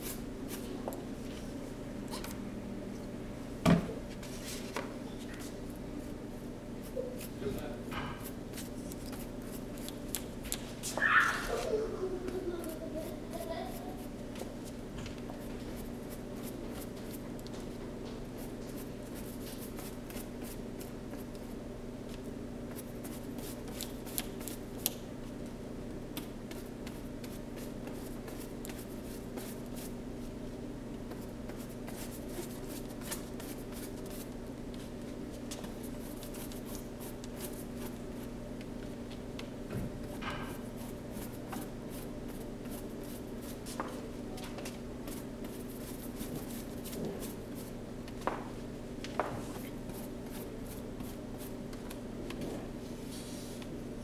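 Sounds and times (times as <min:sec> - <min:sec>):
steady low hum: 0:00.0 - 0:54.0
paintbrush swishing on cardboard: 0:45.1 - 0:47.7, 0:53.0 - 0:53.6.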